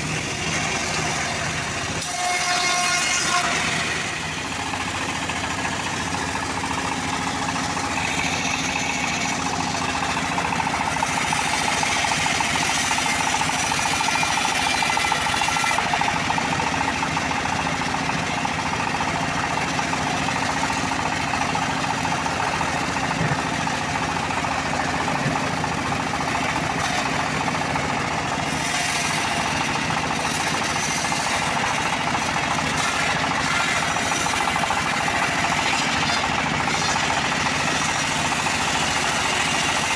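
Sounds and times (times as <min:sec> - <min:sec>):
bandsaw blade cutting log: 0:00.0 - 0:16.7, 0:26.3 - 0:27.6, 0:28.3 - 0:39.9
sawmill drive running: 0:00.0 - 0:39.9.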